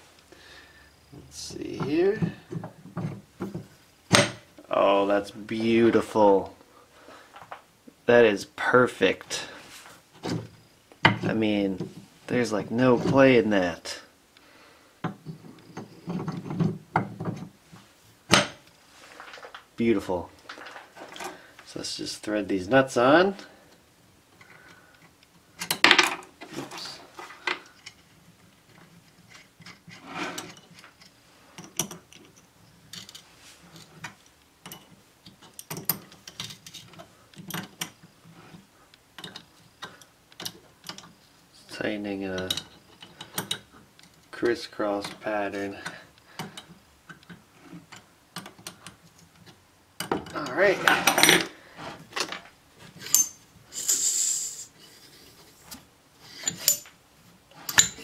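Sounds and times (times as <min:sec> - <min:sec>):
light metal clinks: 0:53.0 - 0:53.4
air hiss from steam engine cylinder: 0:53.7 - 0:54.9.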